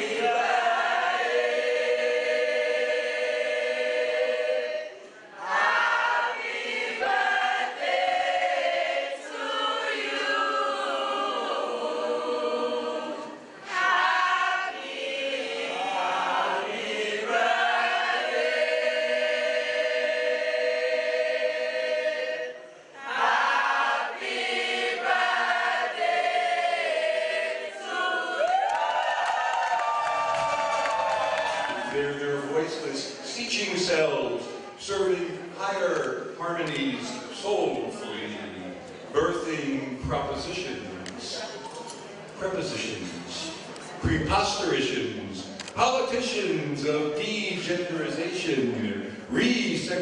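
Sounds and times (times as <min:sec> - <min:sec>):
choir singing: 0:00.0 - 0:28.5
choir breaths: 0:01.5 - 0:05.4.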